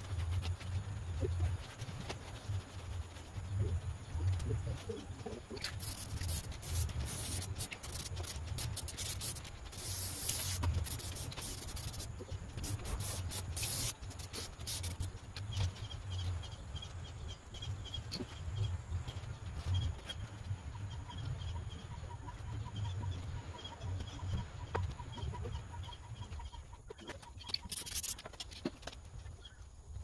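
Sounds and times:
brushes scratching foam: 0:00.0 - 0:15.2, 0:27.5 - 0:28.5.

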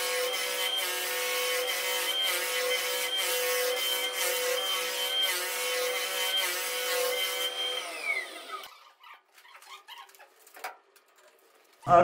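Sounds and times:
floor sanding machine whine: 0:00.0 - 0:08.6.

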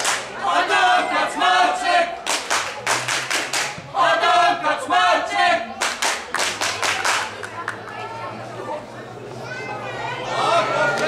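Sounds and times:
rhythmic handclaps: 0:00.0 - 0:00.4, 0:02.2 - 0:03.8, 0:05.8 - 0:08.0
crowd chanting in unison: 0:00.0 - 0:05.8.

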